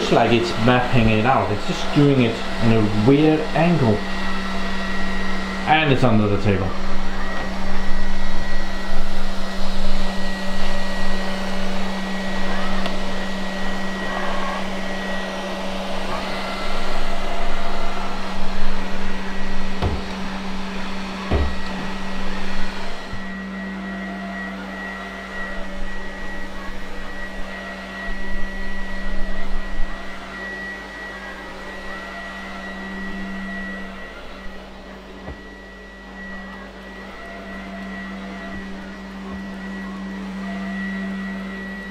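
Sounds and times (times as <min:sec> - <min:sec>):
robot vacuum cleaner humming: 0:00.0 - 0:41.9
knocks: 0:19.8 - 0:20.2, 0:21.3 - 0:21.9.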